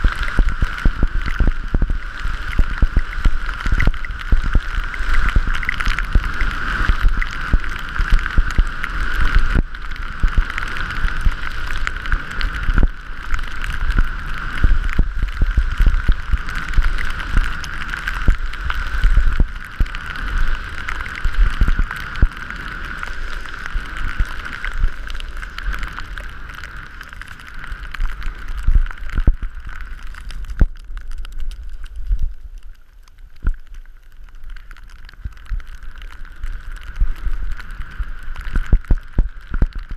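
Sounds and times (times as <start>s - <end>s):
wind buffeting microphone: 0.0s - 26.8s
skis scraping over snow: 0.0s - 30.0s.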